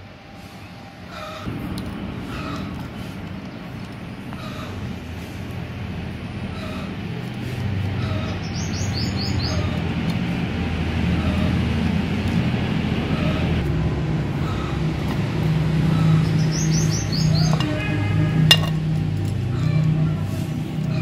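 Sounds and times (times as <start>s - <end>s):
steady low hum: 0.0s - 21.0s
bird chirping: 8.0s - 9.8s, 15.9s - 17.9s.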